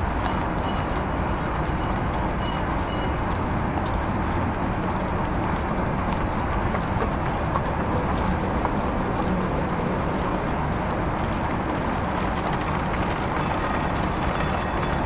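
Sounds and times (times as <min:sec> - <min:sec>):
street noise hiss: 0:00.0 - 0:15.0
bicycle bell ringing: 0:03.3 - 0:04.9, 0:08.0 - 0:09.0.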